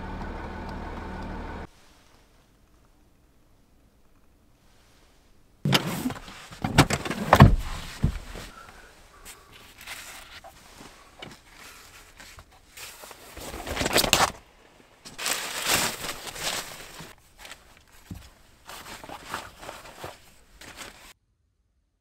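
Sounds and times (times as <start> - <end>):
foil sunshade rustling: 5.7 - 14.5, 15.1 - 21.2.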